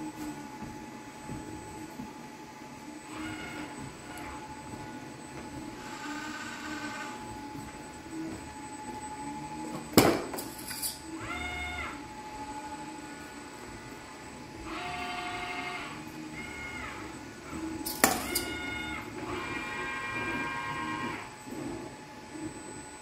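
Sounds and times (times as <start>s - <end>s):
robot servo motors whining: 2.8s - 8.3s, 10.4s - 22.8s.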